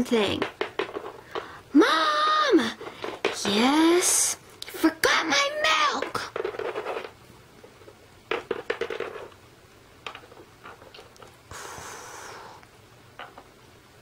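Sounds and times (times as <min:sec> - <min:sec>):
plastic toy pieces knocking: 0:00.0 - 0:01.6, 0:02.6 - 0:04.2, 0:05.6 - 0:09.4, 0:10.0 - 0:11.4, 0:13.2 - 0:13.6
short hiss: 0:11.5 - 0:12.6.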